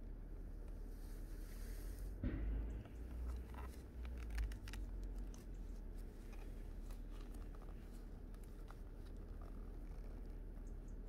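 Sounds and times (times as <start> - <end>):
steady low rumble: 0.0 - 11.0
leather sheath clicks and rustles: 2.7 - 11.0.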